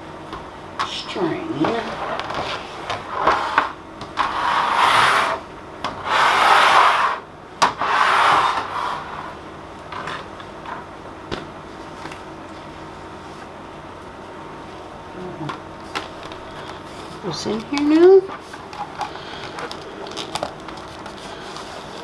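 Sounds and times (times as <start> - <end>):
cloth wiping acrylic sheet: 1.6 - 5.4.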